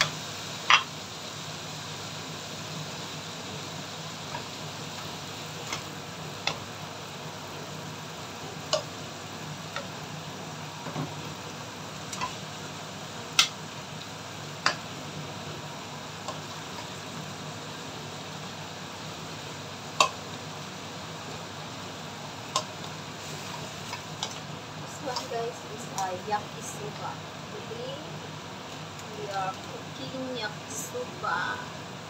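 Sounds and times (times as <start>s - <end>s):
spatula clicking on wok: 0.0s - 0.9s, 4.3s - 6.7s, 8.7s - 8.9s, 12.1s - 12.4s, 13.3s - 13.6s, 14.6s - 14.8s, 19.9s - 20.2s, 22.5s - 22.9s, 23.9s - 24.4s
bacon sizzling in oil: 0.0s - 32.0s.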